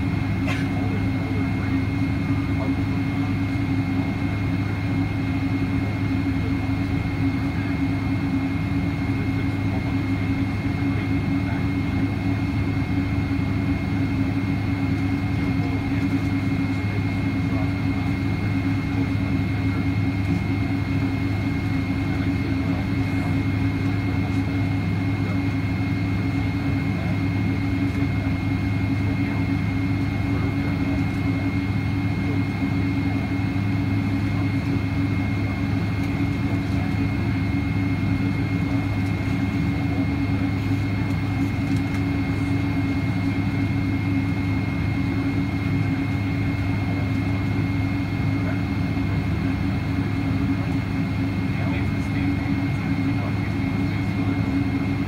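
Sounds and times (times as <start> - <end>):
aircraft cabin drone: 0.0 - 55.0
high engine whine: 0.0 - 55.0.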